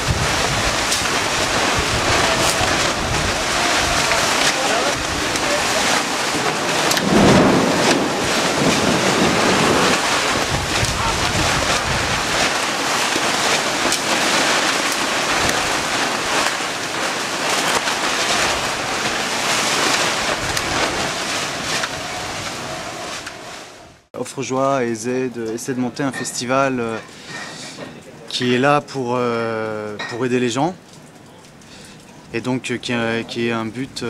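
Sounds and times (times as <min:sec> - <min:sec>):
wind gusts buffeting microphone: 0:00.0 - 0:24.0
heavy rain: 0:00.0 - 0:24.1.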